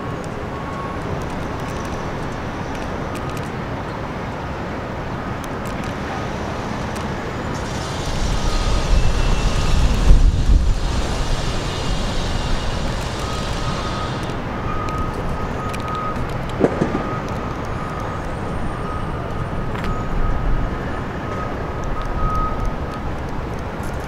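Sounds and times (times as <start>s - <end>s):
road traffic noise: 0.0s - 24.0s.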